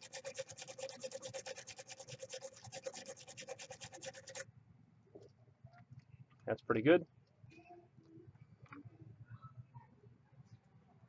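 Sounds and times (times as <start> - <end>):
wire brush scrubbing metal: 0.0 - 4.4.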